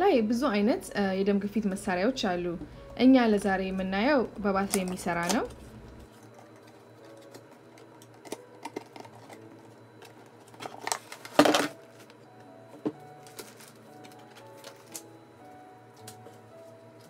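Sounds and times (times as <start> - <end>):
cardboard and plastic packaging handled: 4.6 - 15.2.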